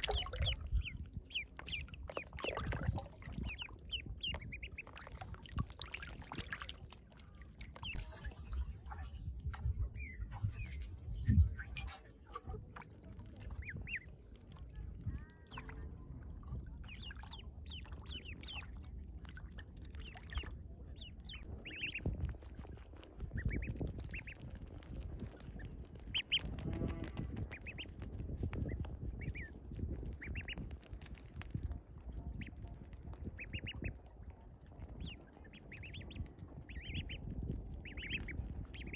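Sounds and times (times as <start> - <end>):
ducklings peeping: 0.0 - 15.8, 16.8 - 38.9
low rumble: 7.4 - 30.2.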